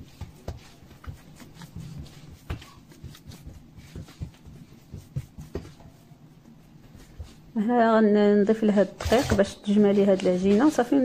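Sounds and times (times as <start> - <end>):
hands patting dough: 0.0 - 7.5.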